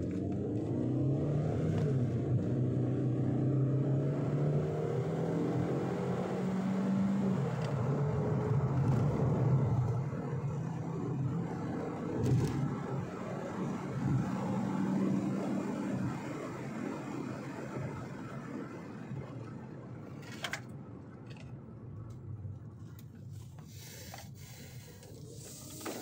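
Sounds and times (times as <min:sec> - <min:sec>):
car engine accelerating hard: 0:00.0 - 0:19.1.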